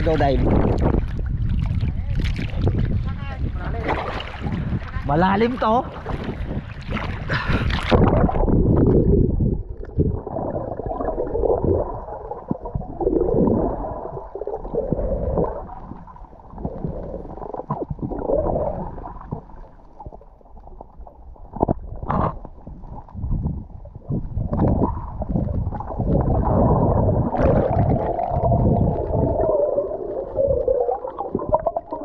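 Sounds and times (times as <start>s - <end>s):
clicks underwater: 0.0s - 4.8s, 6.0s - 15.7s, 16.5s - 32.0s
water splash: 0.0s - 16.0s, 24.5s - 32.0s
underwater bubbling and gurgling: 0.0s - 32.0s.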